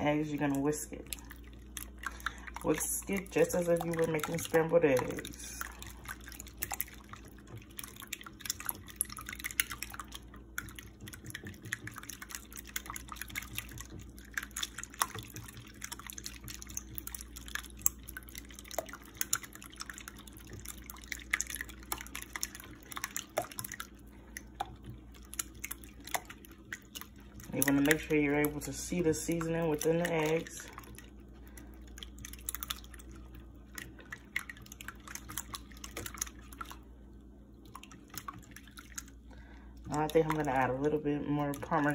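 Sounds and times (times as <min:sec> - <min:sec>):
whisk beating eggs: 0:00.0 - 0:36.9, 0:37.6 - 0:41.9.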